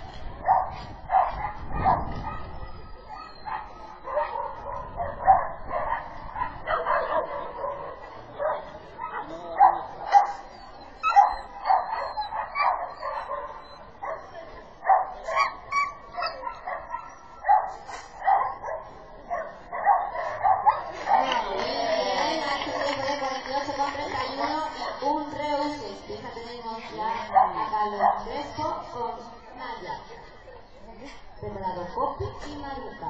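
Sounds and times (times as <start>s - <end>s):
dog barking: 0.4s - 21.4s, 27.2s - 28.3s.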